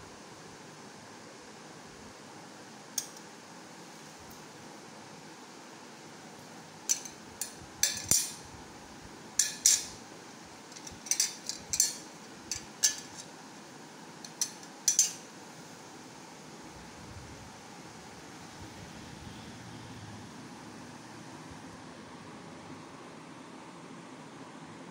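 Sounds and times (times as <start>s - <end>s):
toy metal plates clinking: 10.8s - 13.3s, 14.3s - 15.2s.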